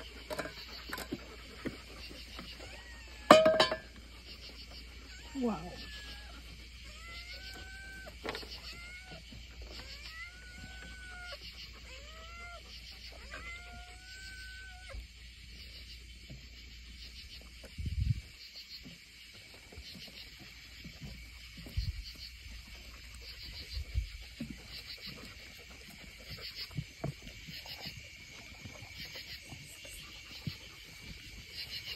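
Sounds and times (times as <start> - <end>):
night insects chirping: 0.0 - 31.9
cats meowing: 2.3 - 3.4, 5.0 - 15.0.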